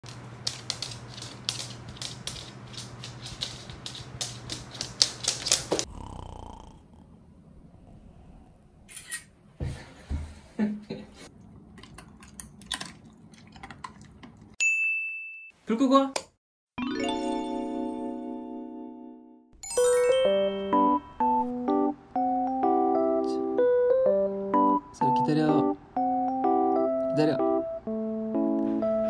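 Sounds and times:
dog claws clicking on wooden floor: 0.1 - 5.9.

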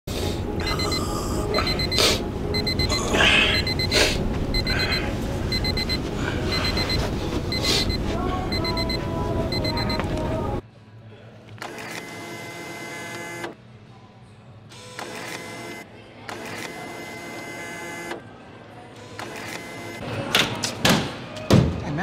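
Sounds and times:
alarm clock beeping: 0.6 - 10.0.

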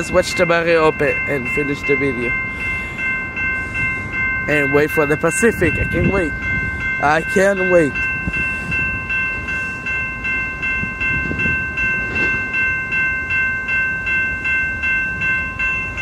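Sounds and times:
railroad crossing bell ringing: 0.0 - 16.0.

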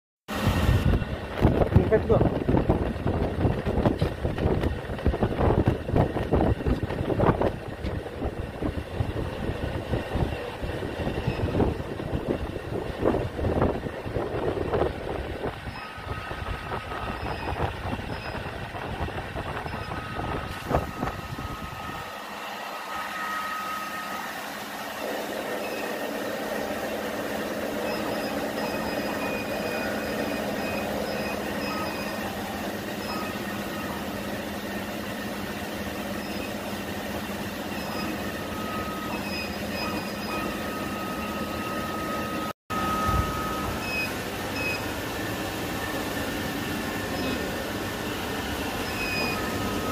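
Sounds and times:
laser cutter whirring hum: 4.2 - 49.9
short high whines: 9.8 - 34.8, 37.7 - 49.9.

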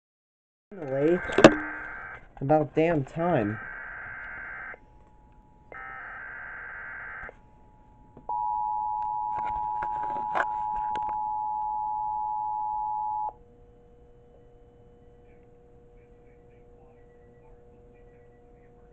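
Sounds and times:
two-tone attention signal: 0.9 - 2.1, 8.3 - 13.3.

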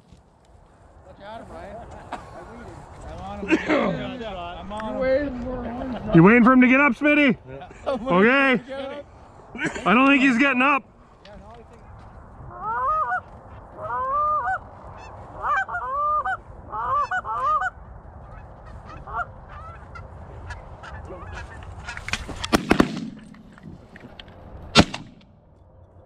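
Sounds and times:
goose honking: 12.5 - 22.0
sharp crack: 21.8 - 23.7, 24.7 - 25.3.

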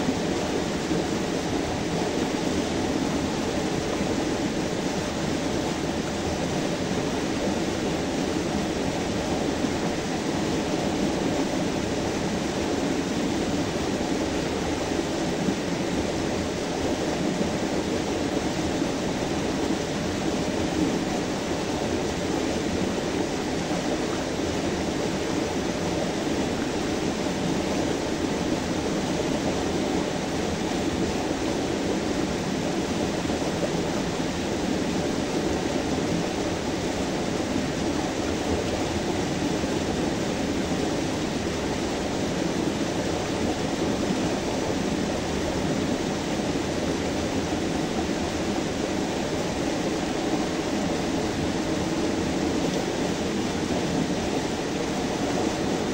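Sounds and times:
stream pouring over rocks: 0.0 - 55.9.

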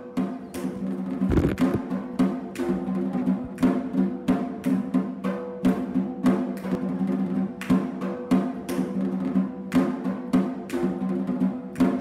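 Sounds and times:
pitched drum strokes: 1.2 - 2.2.

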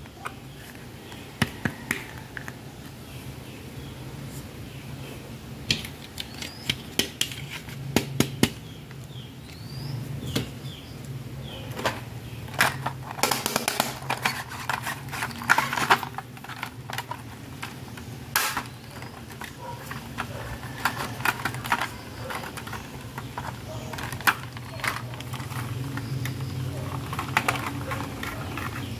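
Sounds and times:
plastic toy pieces clicking: 5.7 - 7.8, 12.5 - 28.9.

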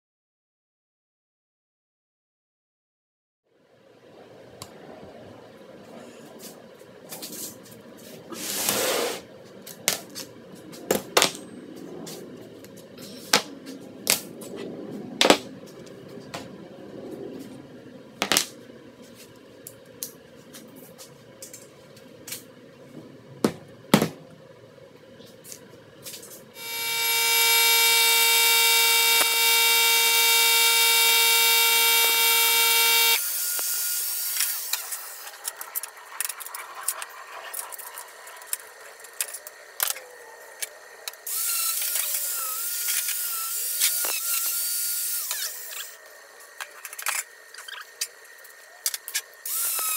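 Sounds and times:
hissing tool noise: 7.2 - 10.7, 25.3 - 49.9
power tool motor running: 26.6 - 37.6, 41.1 - 46.0, 49.1 - 49.9.

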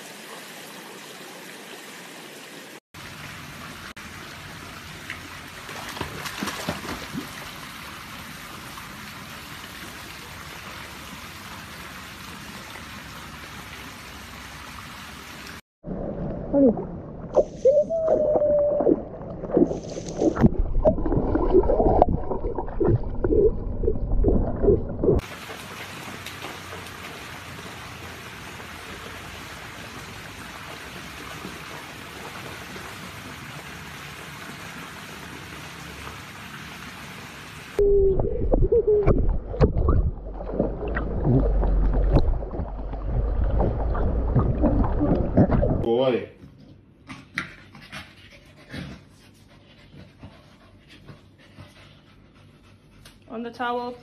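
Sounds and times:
water splashing and sloshing: 0.0 - 46.1
low rumble: 15.8 - 25.2, 37.8 - 45.9
underwater gurgling and sloshing: 15.8 - 25.2, 37.8 - 45.9.

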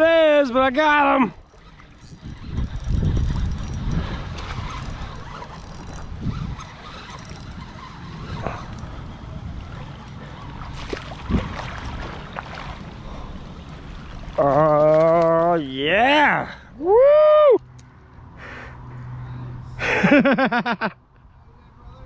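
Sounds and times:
man calling out: 0.0 - 1.4
wind buffeting microphone: 1.3 - 15.5
light water sounds: 3.9 - 15.4.

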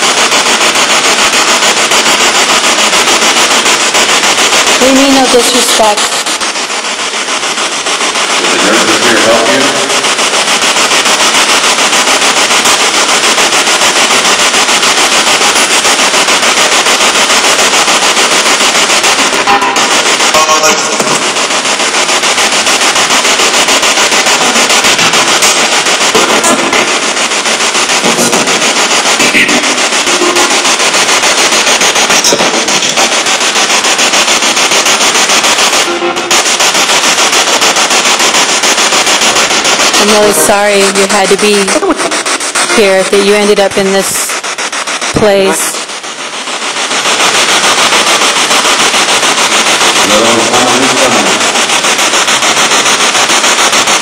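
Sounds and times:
radio static pulsing: 0.0 - 54.0
snatches of broadcast voice: 4.8 - 6.5, 8.2 - 10.2, 19.3 - 21.4, 24.5 - 27.2, 27.8 - 30.8, 32.0 - 33.2, 39.2 - 44.4, 45.1 - 45.9, 50.0 - 51.6.

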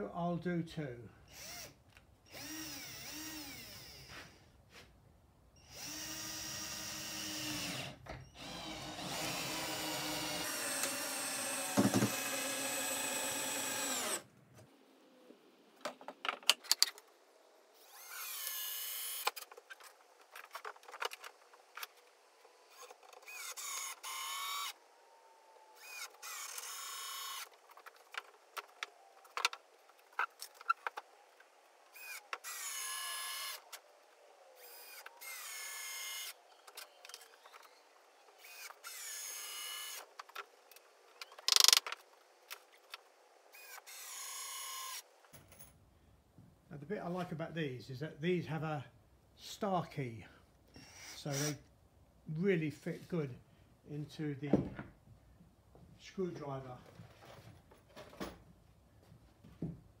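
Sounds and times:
screws driven into wood: 1.3 - 4.1, 5.7 - 14.2, 17.8 - 21.9, 22.7 - 24.8, 25.8 - 31.1, 31.9 - 33.8, 41.2 - 42.0, 43.6 - 45.1, 50.8 - 51.6
drill motor whining: 1.3 - 4.2, 5.6 - 14.3, 17.8 - 19.4, 22.4 - 24.8, 25.4 - 27.5, 31.9 - 33.7, 34.6 - 37.8, 38.4 - 40.1, 43.5 - 45.0, 50.8 - 51.6.

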